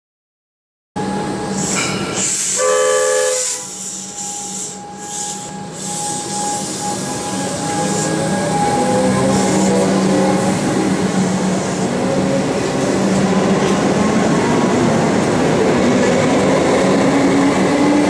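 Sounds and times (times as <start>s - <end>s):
electric train whine and hum: 1.0s - 18.0s
train horn blast: 2.5s - 10.8s.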